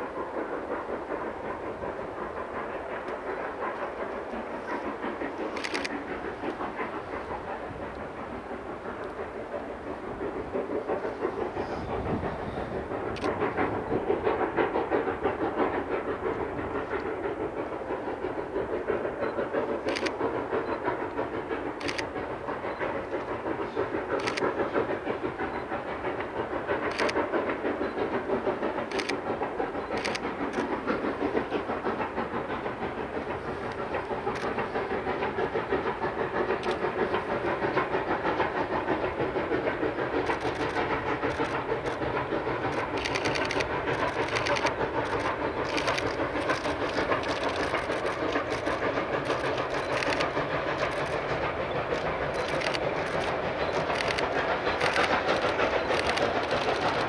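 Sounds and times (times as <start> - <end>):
steam locomotive chuffing: 0.0 - 57.0
sharp clicks: 5.4 - 6.7, 13.2 - 13.4, 19.8 - 20.2, 21.8 - 22.1, 24.2 - 24.4, 29.9 - 30.8, 36.6 - 36.9, 40.2 - 57.0.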